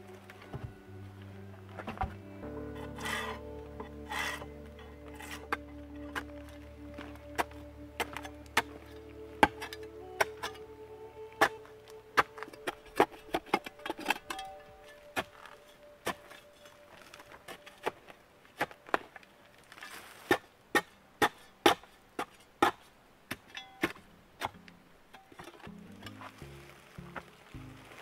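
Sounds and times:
shovel striking stony earth: 0:02.7 - 0:10.6, 0:11.4 - 0:19.1, 0:19.8 - 0:24.6.

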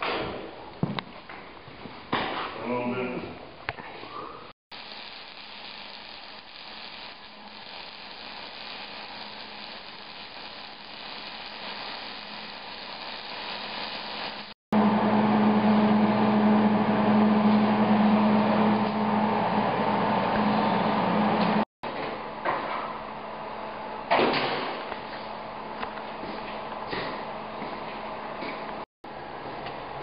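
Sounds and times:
welding arc sizzling: 0:04.7 - 0:14.6.

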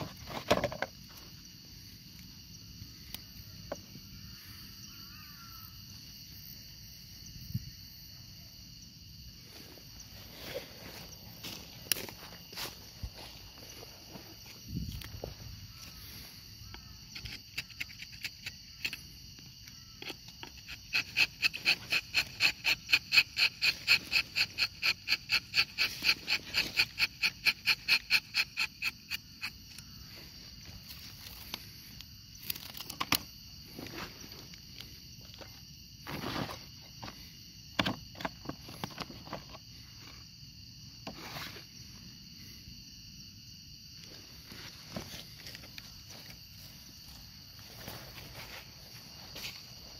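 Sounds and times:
high insect drone: 0:00.0 - 0:49.9
scrapes and rustles: 0:36.0 - 0:37.2, 0:41.1 - 0:41.7.

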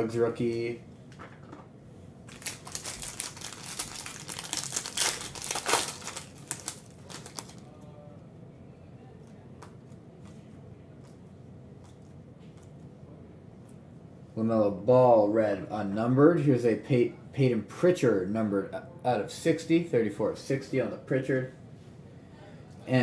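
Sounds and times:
foil wrappers crinkling and tearing: 0:02.3 - 0:07.8.

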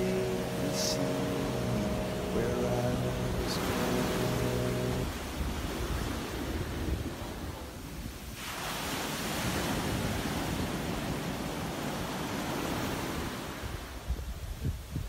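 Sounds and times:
surf washing up a beach: 0:00.0 - 0:15.0
wind rumble on microphone: 0:03.0 - 0:08.4, 0:09.3 - 0:15.0.

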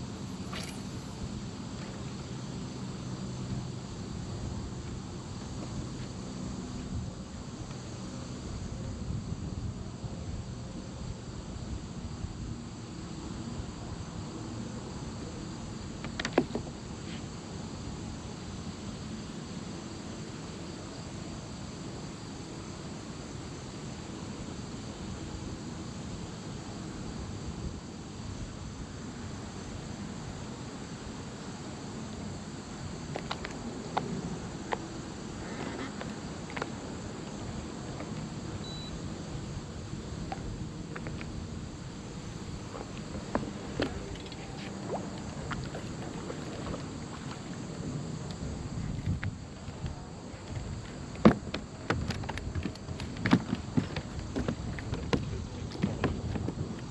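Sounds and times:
faint insect drone: 0:00.0 - 0:56.9
wind noise on microphone: 0:08.3 - 0:12.6, 0:37.4 - 0:56.9.

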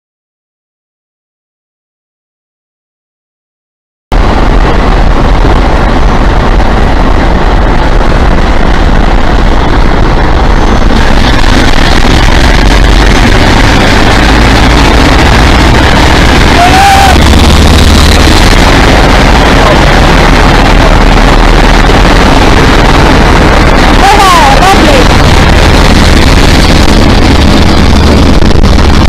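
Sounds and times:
short rising tone: 0:04.1 - 0:24.2
diesel locomotive engines rumbling: 0:04.1 - 0:29.0.

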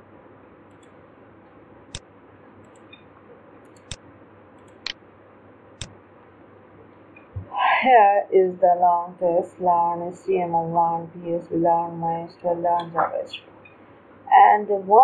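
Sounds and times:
computer mouse clicking: 0:00.7 - 0:01.0, 0:02.6 - 0:04.0, 0:04.6 - 0:05.0.

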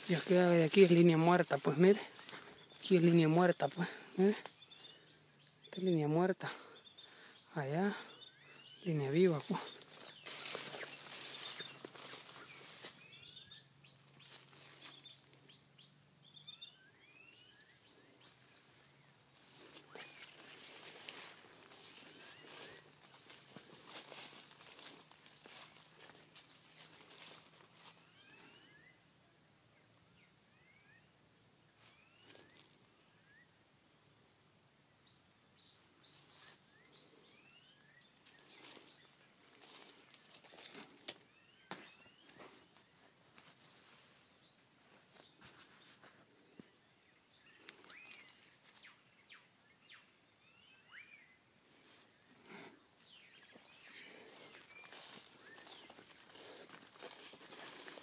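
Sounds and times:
footsteps rustling through ground cover: 0:00.0 - 0:05.3, 0:06.0 - 0:15.6, 0:18.0 - 0:28.7, 0:31.8 - 0:32.8, 0:36.0 - 0:46.8, 0:47.4 - 0:49.4, 0:51.7 - 0:58.0
bird chirps: 0:00.0 - 0:29.0, 0:35.0 - 0:46.2, 0:47.0 - 0:51.4
high insect drone: 0:00.0 - 0:58.0.

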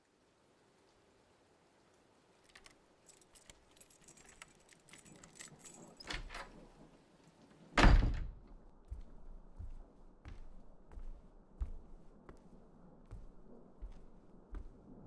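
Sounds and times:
keys jangling: 0:02.5 - 0:06.7.

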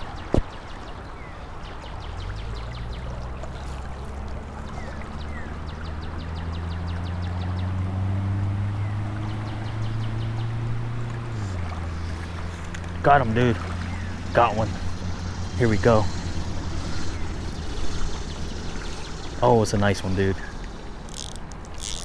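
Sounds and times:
river water running: 0:00.0 - 0:22.0
motor droning: 0:02.0 - 0:22.0
rapid high ticking: 0:13.0 - 0:22.0.

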